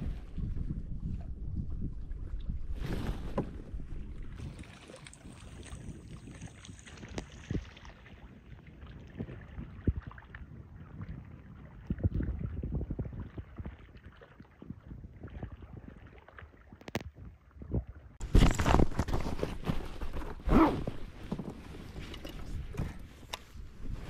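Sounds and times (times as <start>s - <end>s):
water sloshing against hull: 0.0s - 24.0s.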